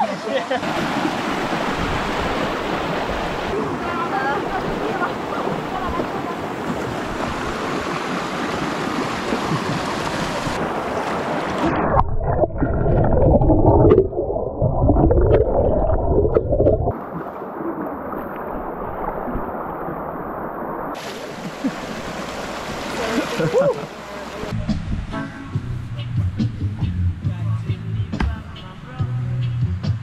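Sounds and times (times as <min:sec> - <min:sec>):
river rushing over stones: 0:00.0 - 0:11.7, 0:16.9 - 0:24.5
water splashing: 0:00.0 - 0:24.6
muffled underwater rumble: 0:11.7 - 0:19.9.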